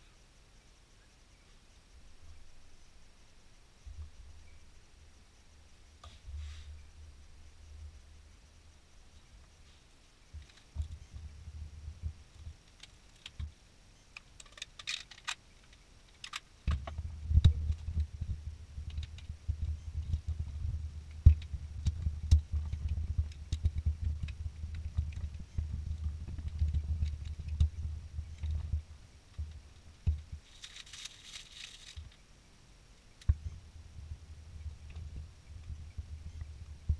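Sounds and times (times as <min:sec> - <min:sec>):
dull knocks and low rumble: 0:10.3 - 0:12.7, 0:16.7 - 0:30.4, 0:33.3 - 0:36.9.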